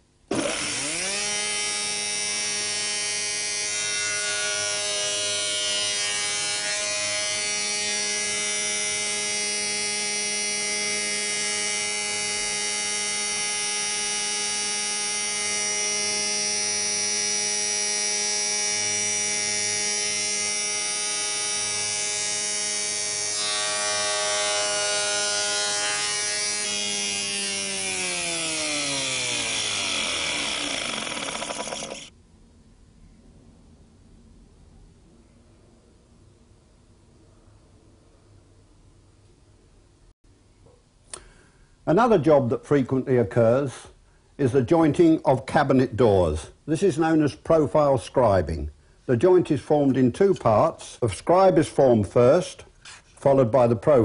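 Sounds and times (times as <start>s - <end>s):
spindle moulder whining: 0.3s - 32.1s
machine running down: 18.6s - 32.1s.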